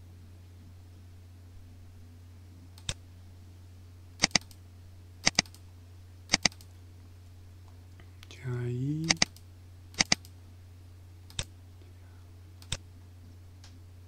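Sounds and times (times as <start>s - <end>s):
steady low hum: 0.0s - 14.0s
computer mouse clicking: 4.2s - 4.6s, 5.2s - 5.6s, 6.3s - 6.7s, 9.0s - 9.4s, 10.0s - 10.4s, 12.6s - 12.8s.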